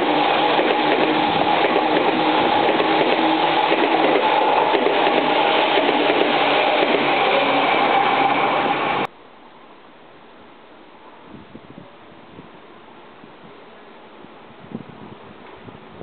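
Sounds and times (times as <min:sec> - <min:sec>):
electric train passing: 0:00.0 - 0:09.1
faint outdoor background: 0:09.0 - 0:16.0.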